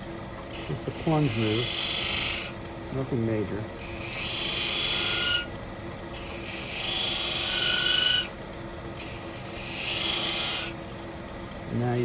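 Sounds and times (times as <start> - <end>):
lathe motor hum: 0.0 - 5.5, 6.1 - 8.3, 9.0 - 10.8
tool scraping spinning wood: 0.5 - 2.5.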